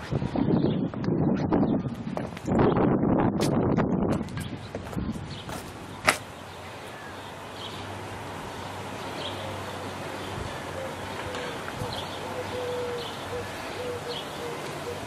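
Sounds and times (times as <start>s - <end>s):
faint bird calls: 9.2s - 15.0s.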